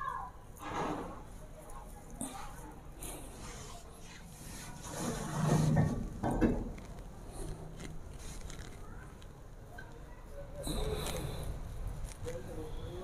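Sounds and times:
hands rubbing wet clay: 2.2s - 6.0s, 6.7s - 9.3s.

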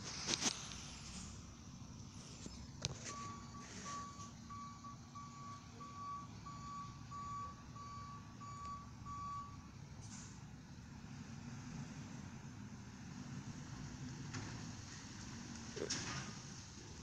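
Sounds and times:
low engine rumble: 0.0s - 17.0s
truck reversing alarm beeping: 2.5s - 10.5s.

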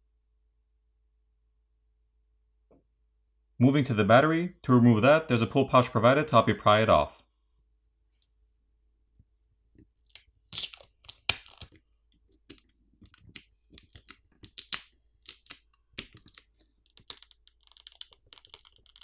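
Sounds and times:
plastic tab crinkling and crackling: 9.8s - 19.0s.

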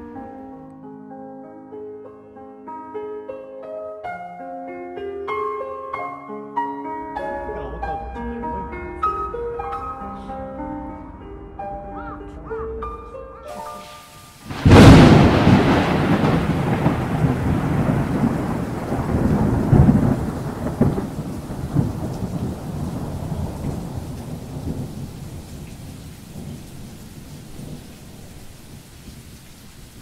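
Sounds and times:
rain hissing: 13.5s - 30.0s
thunder clap and rumble: 14.5s - 29.3s.

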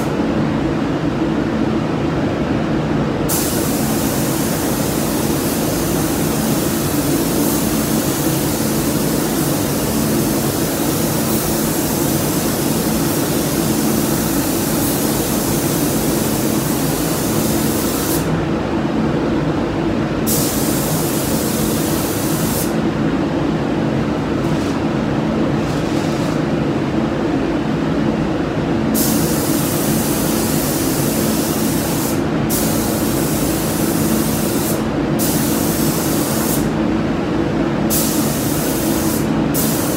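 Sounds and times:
ventilation hum: 0.0s - 39.9s
paint spray gun hissing: 29.0s - 36.7s, 37.9s - 39.9s.

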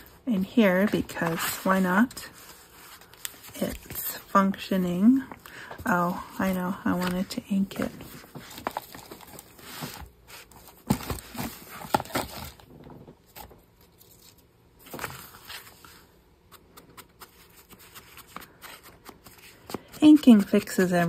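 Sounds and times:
paper rustling: 5.8s - 12.6s.

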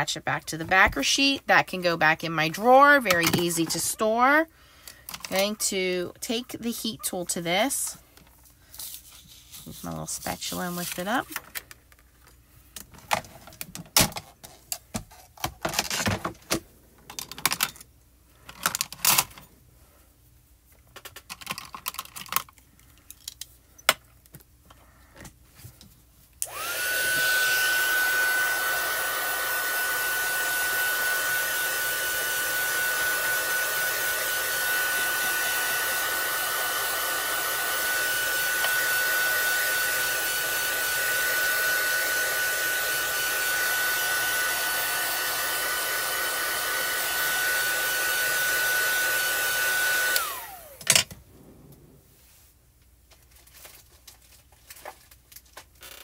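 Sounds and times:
heat tool blowing with high whine: 26.4s - 52.2s.

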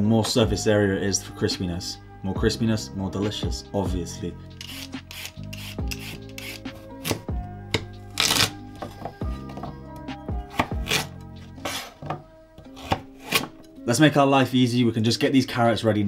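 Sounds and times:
peeler scraping a carrot: 4.6s - 7.2s, 10.5s - 12.0s, 12.7s - 13.6s
knife chopping on plastic board: 10.4s - 11.1s, 11.7s - 13.6s.

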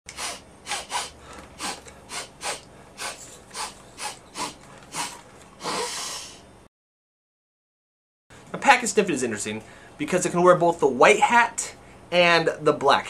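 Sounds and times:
man sniffing: 0.1s - 6.5s.

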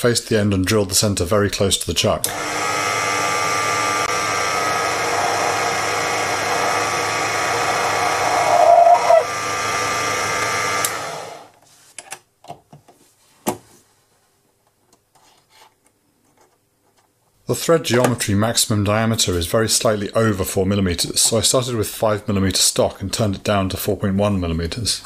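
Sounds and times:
lathe motor whine: 2.3s - 11.5s
lathe squeal: 6.2s - 9.3s.

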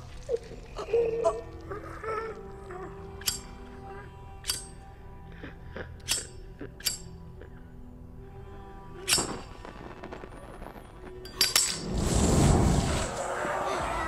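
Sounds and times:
low musical drone: 0.0s - 14.0s
lighter flint wheel clicks: 3.1s - 3.6s, 4.4s - 4.9s, 6.0s - 7.2s.

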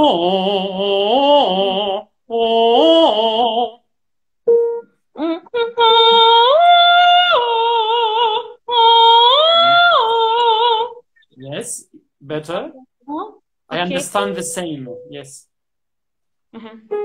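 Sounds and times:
woman singing vocalise with vibrato: 0.0s - 3.8s, 5.1s - 11.1s.

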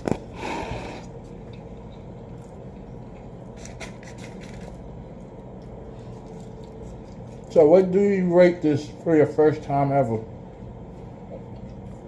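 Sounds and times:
low hum: 0.0s - 9.3s.

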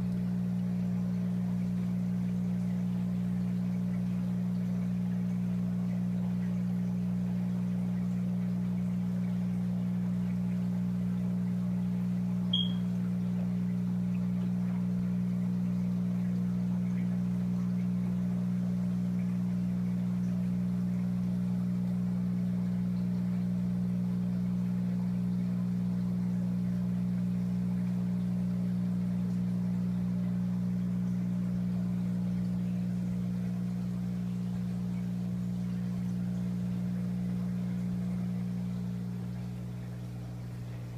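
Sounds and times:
aquarium pump humming: 0.0s - 40.9s
high click: 12.5s - 12.8s.

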